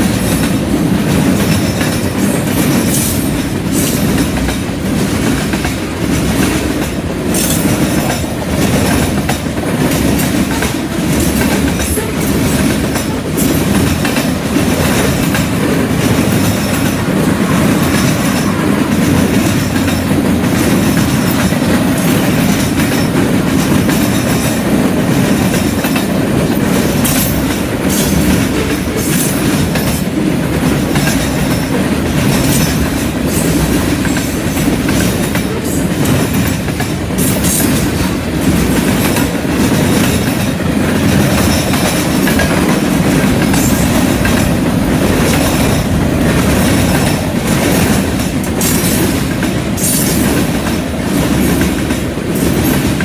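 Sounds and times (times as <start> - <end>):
train wheels rumbling on rails: 0.0 - 53.0
wheels clacking over track joints: 0.0 - 53.0.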